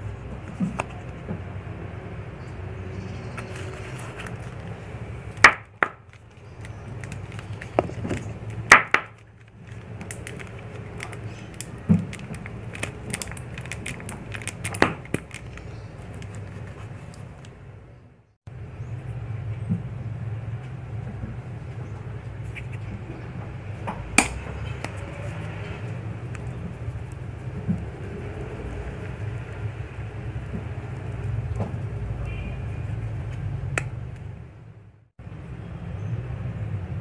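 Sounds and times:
plastic bottle shaken and tapped: 5.4s - 17.5s.

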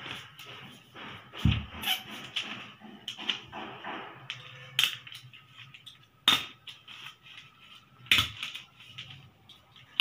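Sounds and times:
paper handling: 6.6s - 10.0s.

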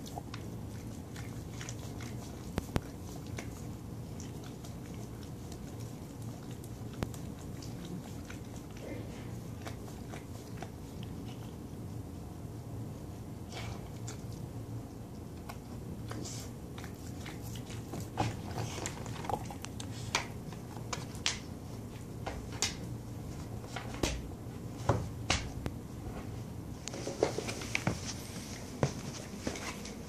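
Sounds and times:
dog chewing and licking rubber toy: 0.0s - 12.2s, 13.0s - 22.5s.

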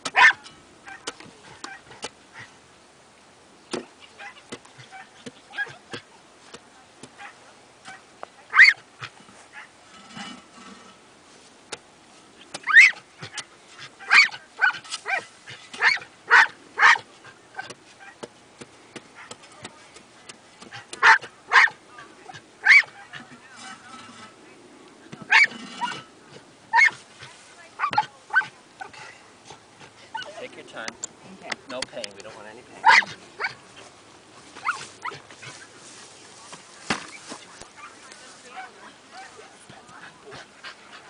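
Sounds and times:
dog barking: 0.1s - 2.5s, 7.2s - 8.8s, 12.7s - 13.4s, 14.0s - 18.2s, 21.0s - 21.8s, 22.6s - 23.2s, 25.3s - 25.6s, 26.7s - 27.0s, 27.8s - 28.5s, 32.8s - 33.6s.

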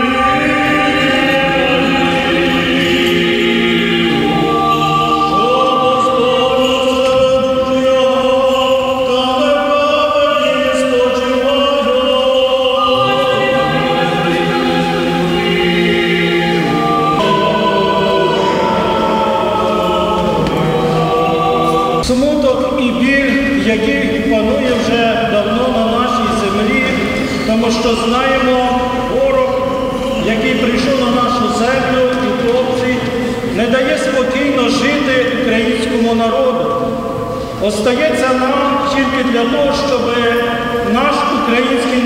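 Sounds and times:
choir singing unaccompanied chant: 0.0s - 22.0s.

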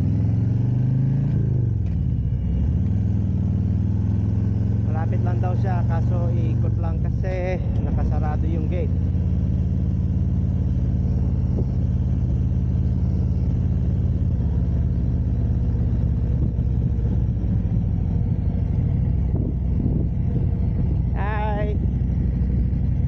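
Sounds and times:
motorcycle engine rumbling: 0.0s - 23.0s.

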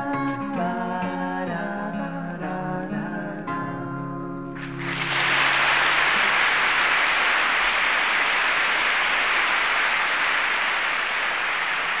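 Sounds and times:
audience applauding: 4.6s - 12.0s.

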